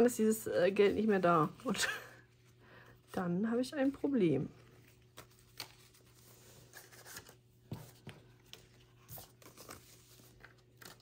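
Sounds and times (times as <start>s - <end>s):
low steady hum: 0.0s - 11.0s
paper rustling: 3.8s - 11.0s.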